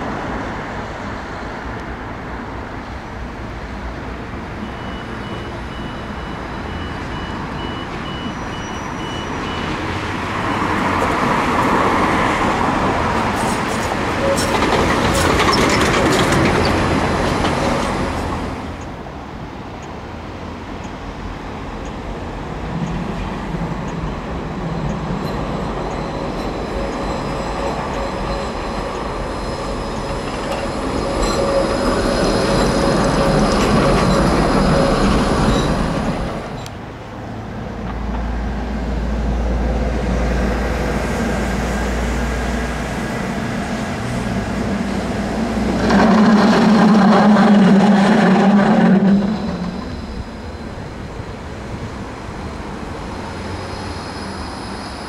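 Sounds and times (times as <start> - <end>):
tram rumbling and rattling: 0.0 - 55.0
wheels squealing faintly: 45.3 - 50.8.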